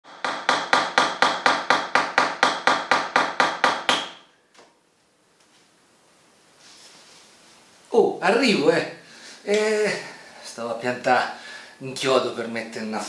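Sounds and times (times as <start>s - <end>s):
hammer hitting nail: 0.1s - 4.3s.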